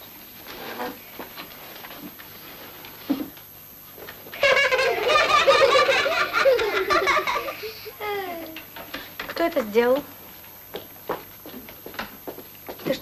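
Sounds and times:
children laughing and shouting: 0:04.4 - 0:08.6.

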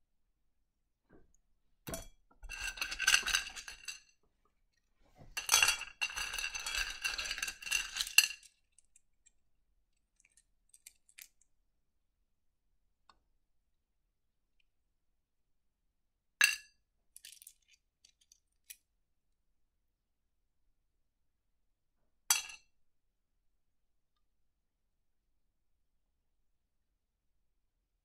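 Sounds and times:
stones clinking on a plate: 0:01.9 - 0:04.2, 0:05.3 - 0:09.0, 0:22.3 - 0:22.6.

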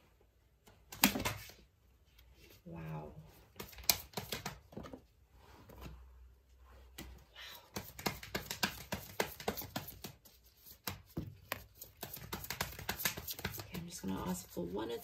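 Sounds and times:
cards being shuffled: 0:03.5 - 0:04.7, 0:07.7 - 0:15.0.

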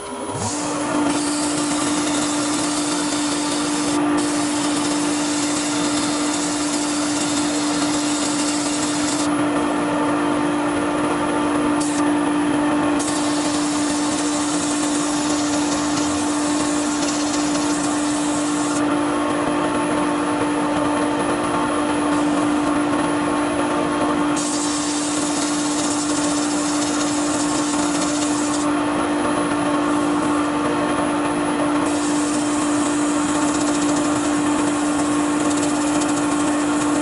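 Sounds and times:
wood lathe humming: 0:00.0 - 0:37.0
sandpaper hissing on wood: 0:00.4 - 0:09.3, 0:13.0 - 0:18.8, 0:24.4 - 0:28.6, 0:31.9 - 0:34.1.

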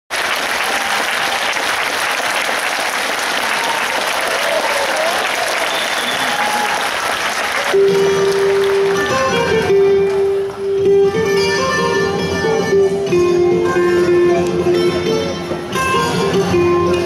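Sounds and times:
audience applauding: 0:00.1 - 0:09.8
music with long held note: 0:07.7 - 0:17.0.

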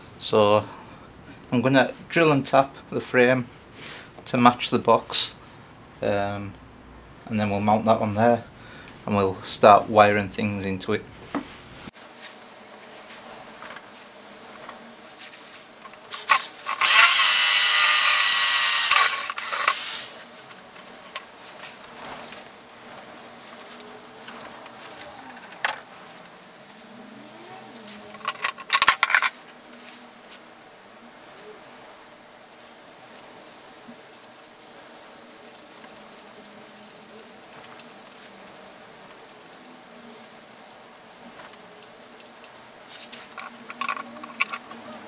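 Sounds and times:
electric drill boring into steel: 0:16.1 - 0:20.2.

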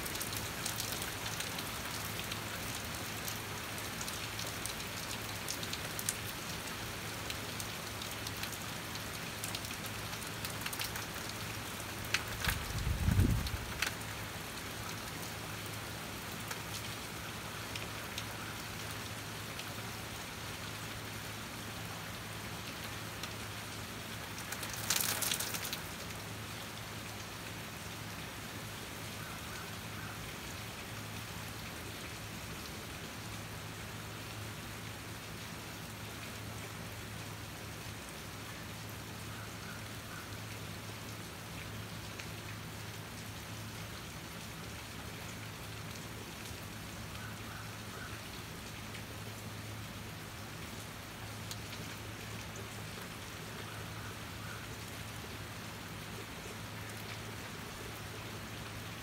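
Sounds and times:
steady rain: 0:00.0 - 0:59.0
dripping ticks: 0:24.4 - 0:25.9.

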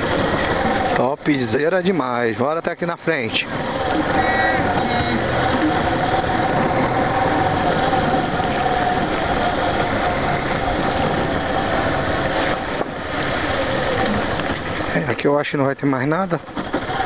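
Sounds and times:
motorcycle engine running: 0:03.1 - 0:15.2.

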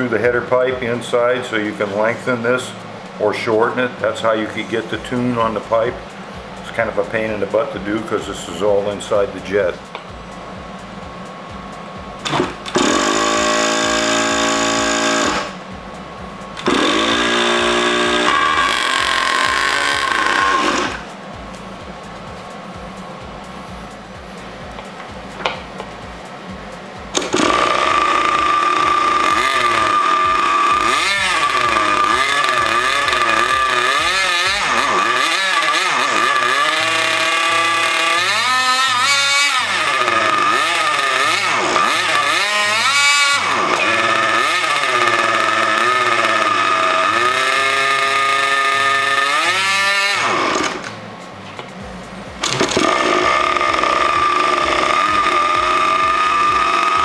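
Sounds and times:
model engine whining: 0:12.2 - 0:15.6, 0:16.5 - 0:21.1, 0:27.1 - 0:51.0, 0:52.4 - 0:57.0.

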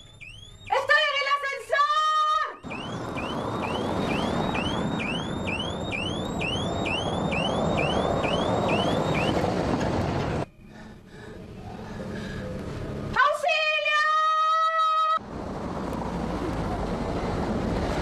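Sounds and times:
electronic alarm rising sweeps: 0:00.0 - 0:01.0, 0:02.5 - 0:09.6
street traffic: 0:00.0 - 0:18.0.

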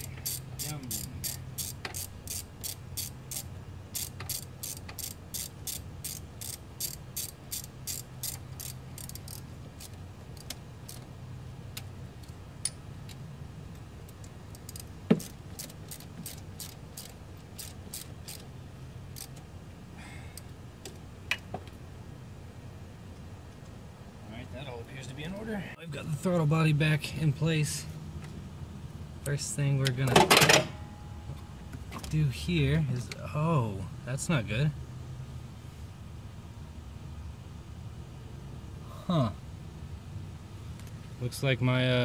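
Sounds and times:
socket ratchet clicking: 0:00.0 - 0:11.1, 0:14.1 - 0:18.5, 0:19.1 - 0:19.4.

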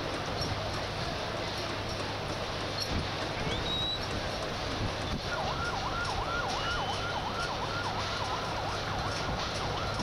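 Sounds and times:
large crowd noise: 0:00.0 - 0:10.0
emergency siren yelping: 0:05.2 - 0:10.0.

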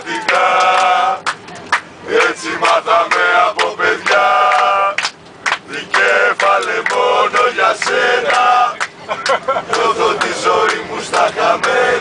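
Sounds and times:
men chanting in unison: 0:00.0 - 0:01.2, 0:02.1 - 0:05.0, 0:05.7 - 0:08.8, 0:09.7 - 0:12.0.

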